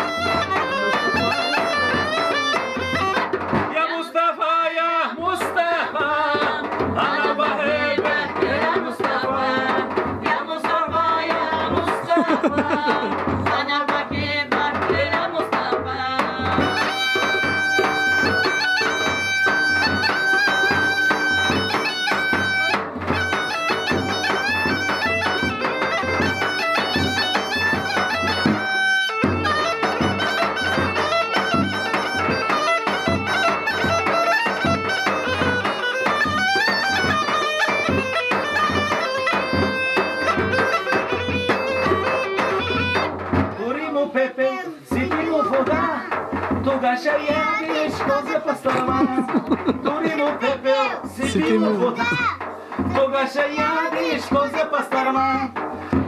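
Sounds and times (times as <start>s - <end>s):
bagpipe drone: 0.0s - 3.3s, 16.6s - 43.1s
bagpipe playing fast folk tune: 0.0s - 3.4s, 16.6s - 43.2s.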